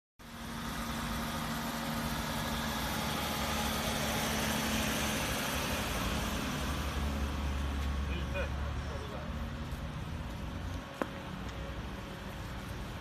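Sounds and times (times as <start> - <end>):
vehicle engines idling: 0.2 - 13.0.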